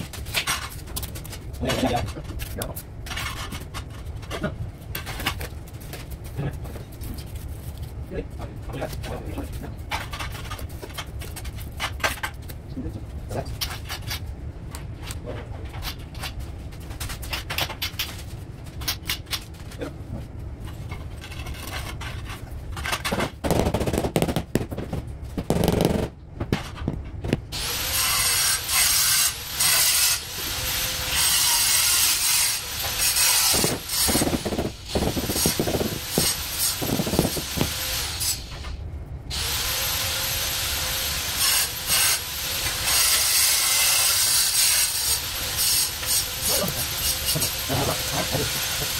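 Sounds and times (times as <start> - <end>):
high-pitched power tool: 27.6 - 48.9.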